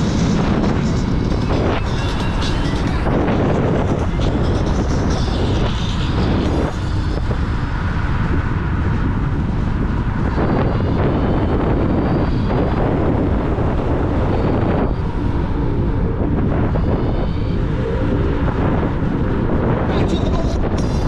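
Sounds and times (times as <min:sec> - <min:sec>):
faint high whine: 0:00.0 - 0:21.0
wind rumble on microphone: 0:00.0 - 0:21.0.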